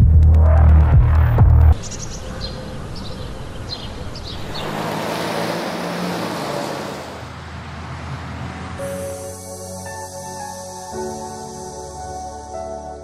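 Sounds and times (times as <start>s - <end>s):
passing cars: 1.7s - 9.3s.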